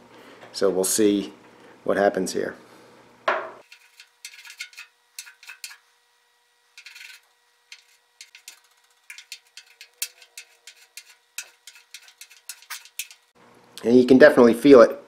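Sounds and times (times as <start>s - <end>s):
file scraping over clear coat: 3.6s - 5.8s, 6.8s - 13.4s.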